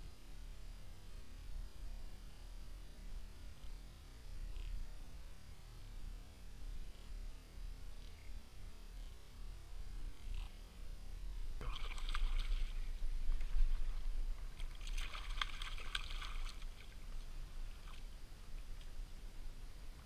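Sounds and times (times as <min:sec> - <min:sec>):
fish splashing in water: 0:11.6 - 0:17.0.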